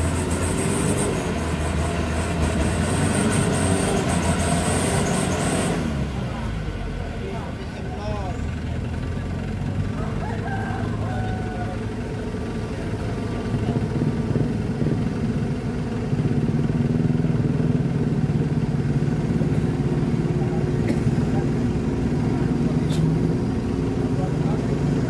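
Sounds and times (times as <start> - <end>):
truck diesel engine straining: 0.0 - 25.0.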